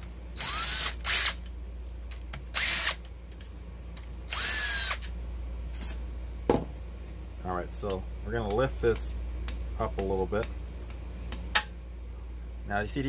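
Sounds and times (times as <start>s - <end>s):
power driver motor whine: 0.4s - 1.4s, 2.5s - 3.0s, 4.3s - 5.1s.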